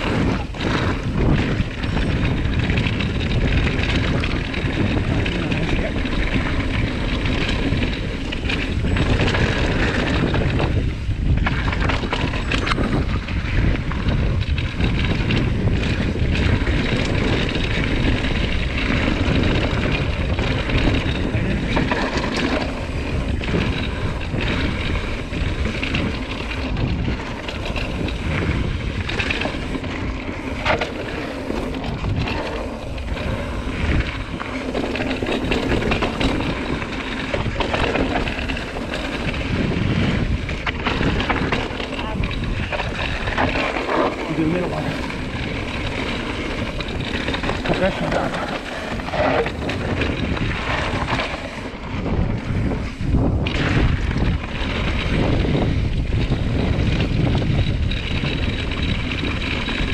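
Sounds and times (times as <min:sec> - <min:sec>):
bike clacking and rattling: 0:00.0 - 0:59.9
bike tyres on gravel trail: 0:00.0 - 0:59.9
wind buffeting microphone: 0:00.0 - 0:59.9.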